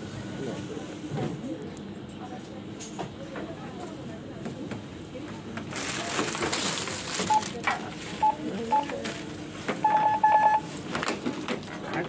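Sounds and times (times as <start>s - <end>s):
rustling and clatter at till: 5.6s - 8.3s
barcode scanner beeping: 7.2s - 7.6s, 8.2s - 9.0s, 9.8s - 10.6s.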